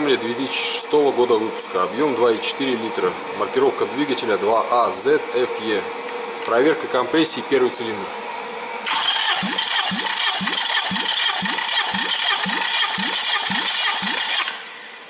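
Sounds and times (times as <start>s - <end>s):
starter motor whirring: 8.8s - 15.0s.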